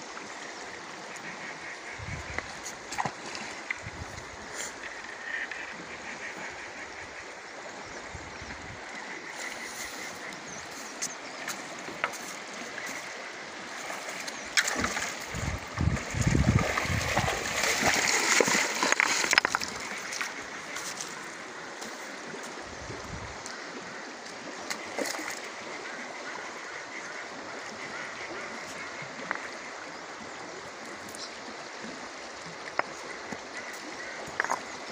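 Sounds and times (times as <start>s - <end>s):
shallow stony river rushing: 0.0s - 34.9s
fish thrashing and splashing: 14.1s - 21.0s.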